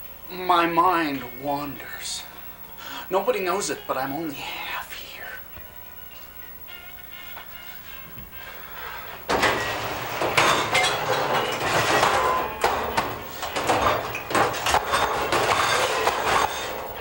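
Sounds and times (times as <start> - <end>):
plates rattling and clanking: 9.2 - 17.0.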